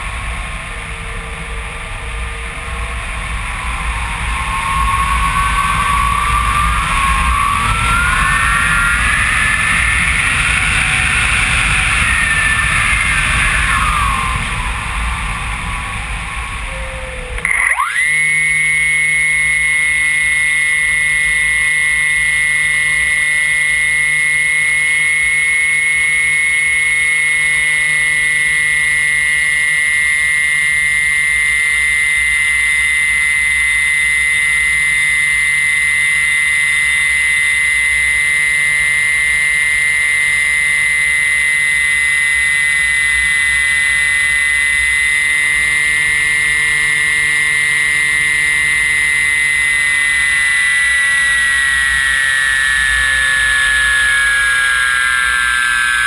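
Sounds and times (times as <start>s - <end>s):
air rushing past glider: 0.0s - 17.4s
electric motor whining: 0.0s - 56.0s.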